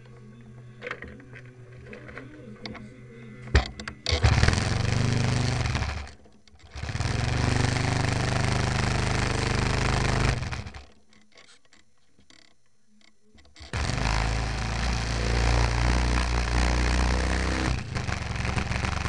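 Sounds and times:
model airplane engine running: 0:03.6 - 0:10.9, 0:13.7 - 0:19.0.

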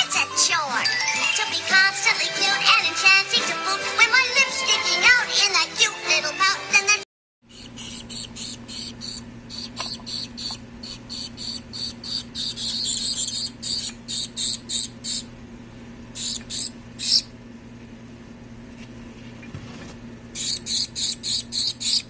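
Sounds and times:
baby birds cheeping: 0:07.5 - 0:15.3, 0:16.2 - 0:17.4, 0:20.4 - 0:22.0.

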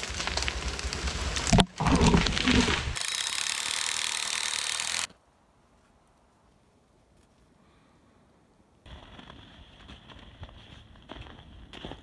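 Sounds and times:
tree crashing through branches: 0:00.0 - 0:03.0.

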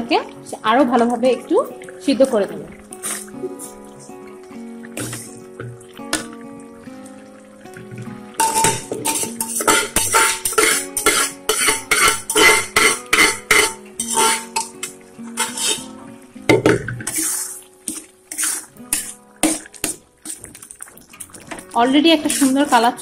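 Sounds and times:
metal spatula scraping a wok: 0:08.4 - 0:16.0, 0:17.0 - 0:20.4, 0:22.1 - 0:23.0.

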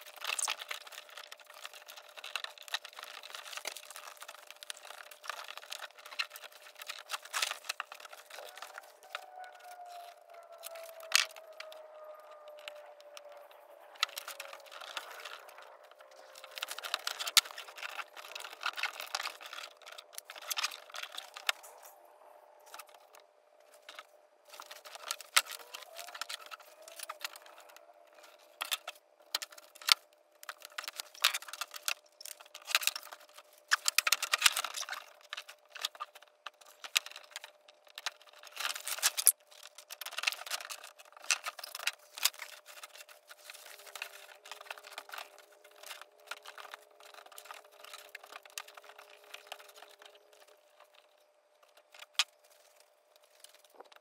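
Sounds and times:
fabric rustling and crinkling: 0:38.2 - 0:54.0.

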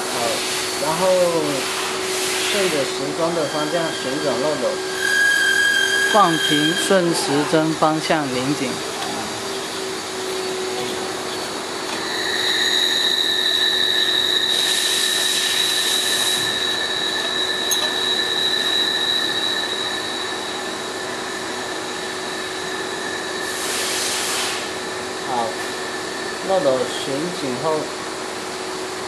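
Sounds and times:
high whine: 0:02.8 - 0:27.9
machine hum: 0:02.9 - 0:29.0
burst of hiss: 0:23.5 - 0:24.8.

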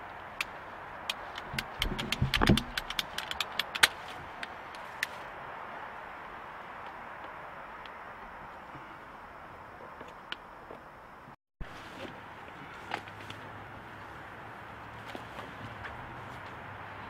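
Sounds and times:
pipe snapping: 0:00.4 - 0:04.0
pipe cutter clicking and crunching: 0:00.4 - 0:05.1.

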